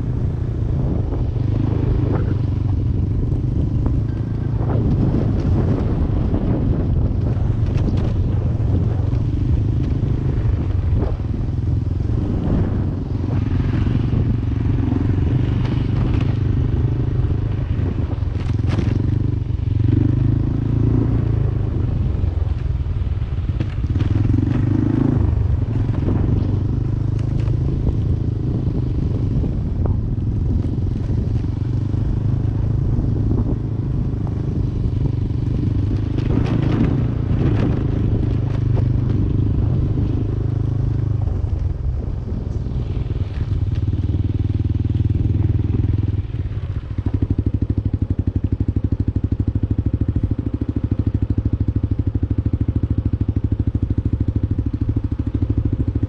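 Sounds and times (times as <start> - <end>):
scooter engine running: 0.0 - 56.0
bike clicks and rattles: 7.0 - 10.0, 18.1 - 19.4.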